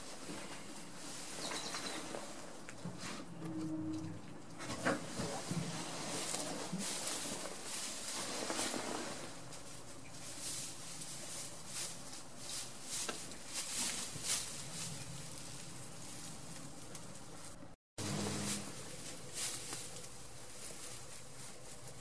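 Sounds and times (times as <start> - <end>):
straw bedding rustling: 5.0 - 22.0.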